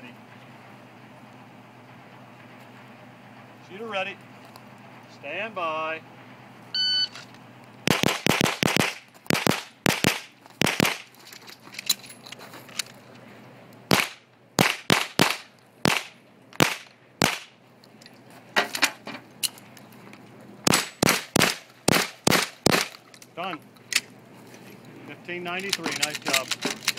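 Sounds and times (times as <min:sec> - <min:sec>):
shot timer beep: 0:06.8 - 0:07.2
pistol shots: 0:07.9 - 0:11.1, 0:13.9 - 0:17.5, 0:20.7 - 0:23.0.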